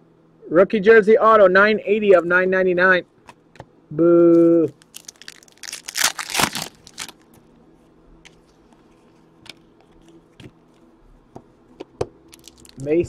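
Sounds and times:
foil wrapper tearing and crinkling: 4.7 - 7.3, 12.3 - 12.9
cards ticking and rustling: 12.3 - 13.0.

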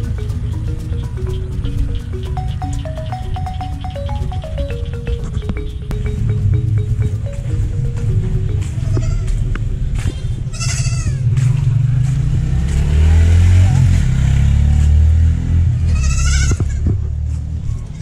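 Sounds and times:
low engine rumble: 0.0 - 18.0
goats bleating: 8.8 - 9.3, 10.5 - 11.3, 15.9 - 16.9.

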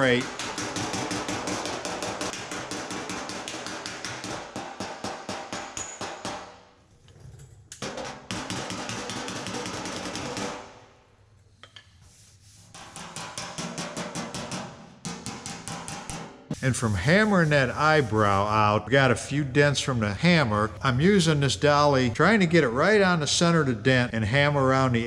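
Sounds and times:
hammer tapping on metal: 0.0 - 6.5, 12.8 - 16.3.

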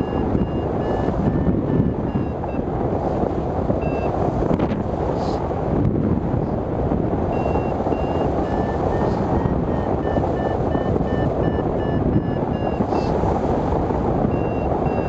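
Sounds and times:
variometer short beeps: 0.0 - 2.7, 3.8 - 4.2, 7.3 - 13.2, 14.2 - 15.0
wind rushing over microphone: 0.0 - 15.0.

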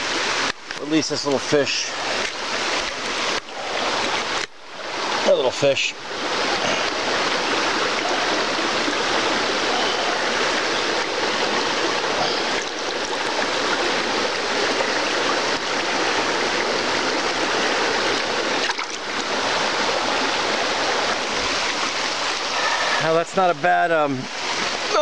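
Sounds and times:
stream rushing over rocks: 0.0 - 25.0.

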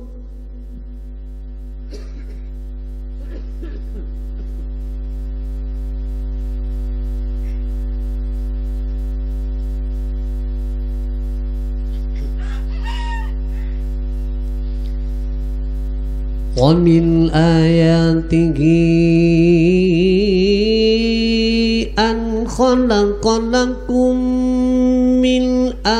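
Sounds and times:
electrical mains hum: 0.0 - 25.9
rooster crowing: 12.4 - 13.8.

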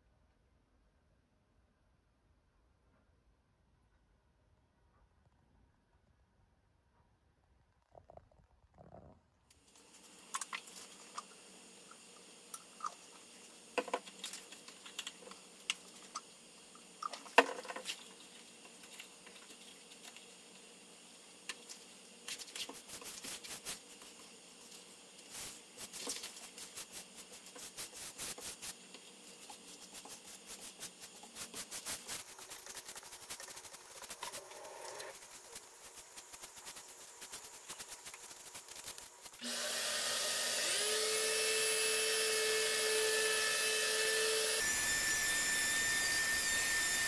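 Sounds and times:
faint steady hiss: 9.5 - 39.4
paintbrush scratching in cup: 21.6 - 24.3, 25.2 - 39.4.

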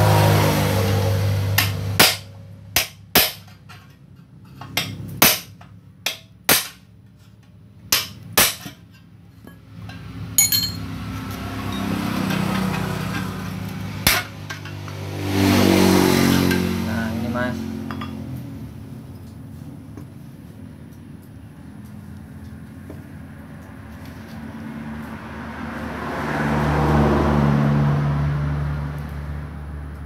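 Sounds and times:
hammer striking metal rod: 1.6 - 3.9, 4.6 - 6.8, 7.9 - 8.8, 9.9 - 10.8, 12.2 - 15.0
metal scraping and rumbling: 8.8 - 20.6.

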